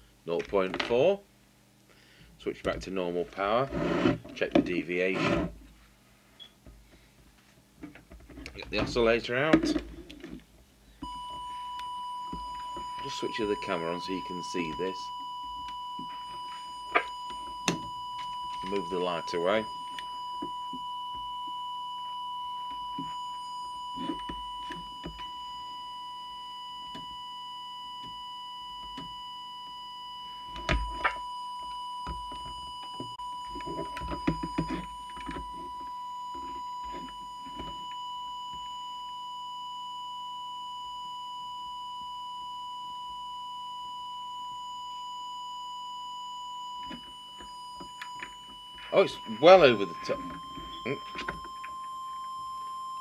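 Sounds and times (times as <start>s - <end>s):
high whistle-like test tone: 11.0s - 53.0s.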